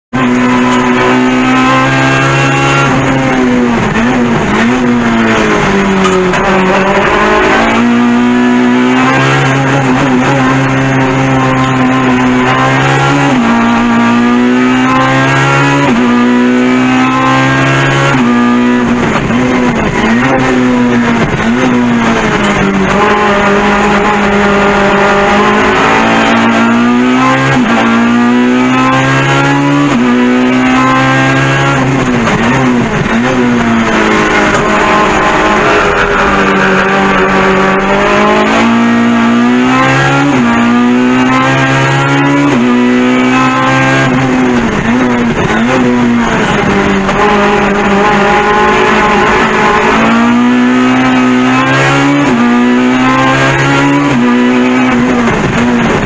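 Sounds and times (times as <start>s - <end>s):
race car engine revving: 0.1s - 56.0s.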